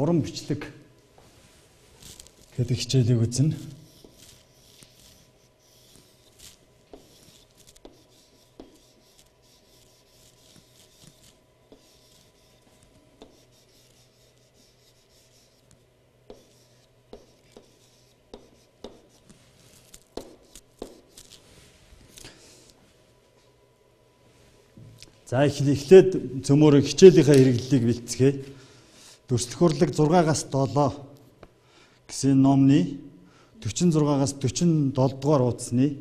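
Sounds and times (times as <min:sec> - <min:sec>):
pen scratching and tapping on chalkboard: 0:03.9 - 0:05.2, 0:05.8 - 0:12.5, 0:13.2 - 0:19.2, 0:19.8 - 0:21.4.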